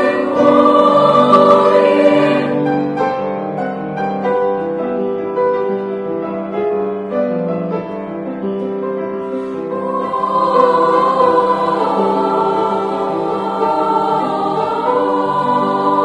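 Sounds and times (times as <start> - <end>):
children's choir singing: 0.0 - 3.4, 9.4 - 16.0
piano accompaniment: 0.0 - 16.0.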